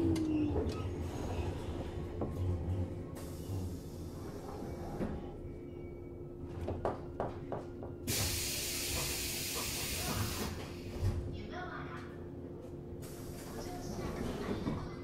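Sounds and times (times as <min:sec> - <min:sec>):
hiss of compressed air: 0:08.1 - 0:10.6.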